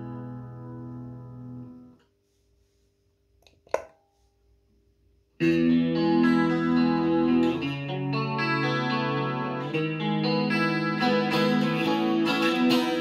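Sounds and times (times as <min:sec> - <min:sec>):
electric guitar chord with chorus: 0:05.4 - 0:13.0.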